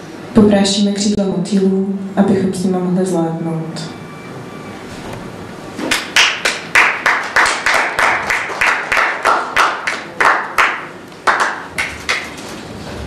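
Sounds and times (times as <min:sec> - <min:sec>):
hands clapping: 0:05.8 - 0:12.5.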